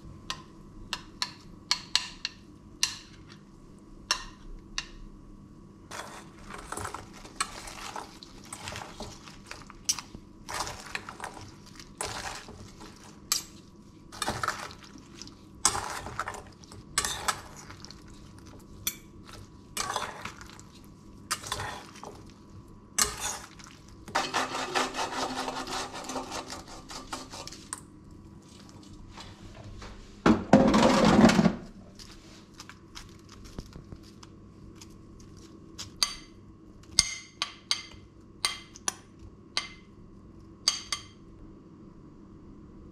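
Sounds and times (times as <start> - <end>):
metal utensils scraping steel bowl: 17.0 - 17.5, 21.3 - 22.0, 23.0 - 27.8.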